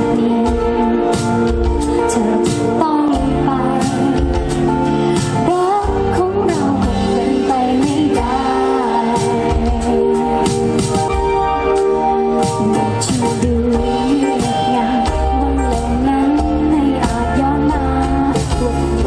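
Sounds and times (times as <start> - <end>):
woman singing into microphone: 0.0 - 10.8, 12.4 - 19.0
live band playing pop song: 0.0 - 19.0.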